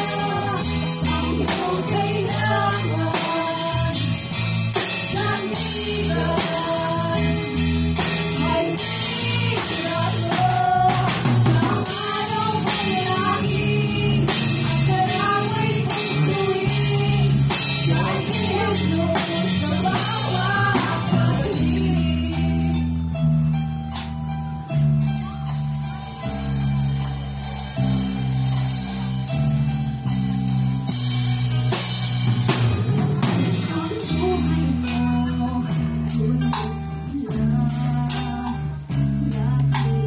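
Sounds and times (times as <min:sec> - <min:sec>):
girls singing a duet: 0:00.0 - 0:04.2, 0:05.1 - 0:22.8
instrumental accompaniment with beat: 0:00.0 - 0:40.0.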